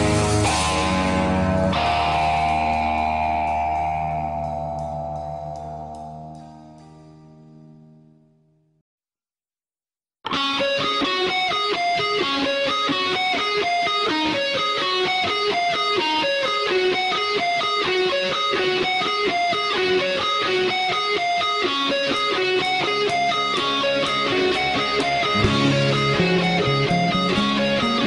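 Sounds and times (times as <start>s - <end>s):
picked guitar music: 0.0s - 8.6s, 10.3s - 28.0s.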